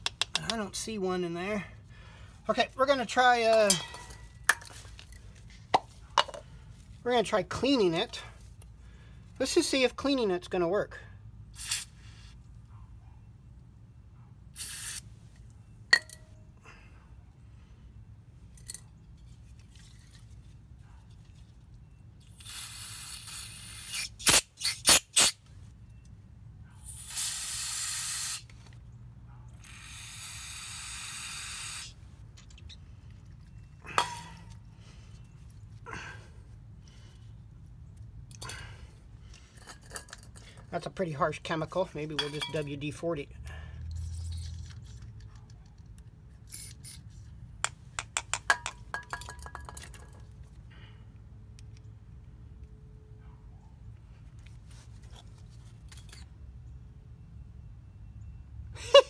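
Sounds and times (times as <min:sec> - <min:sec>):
sharp clicks and metallic taps: 0:00.0 - 0:00.7
aerosol spray can hissing: 0:14.6 - 0:15.0, 0:22.4 - 0:25.3, 0:26.9 - 0:28.5, 0:29.7 - 0:32.0.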